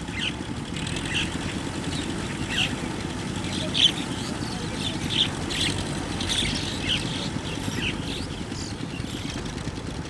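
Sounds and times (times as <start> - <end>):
birds chirping: 0.0 - 9.5
tractor diesel engine running: 0.0 - 10.0.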